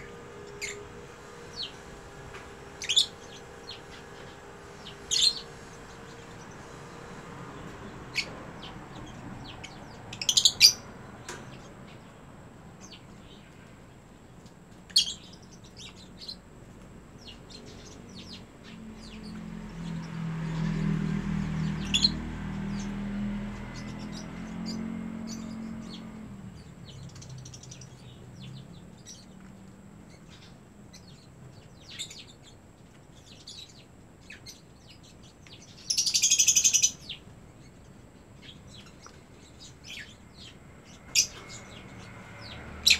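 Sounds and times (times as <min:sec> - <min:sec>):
low hum: 0:00.0 - 0:10.1
lovebirds chirping: 0:00.0 - 0:42.9.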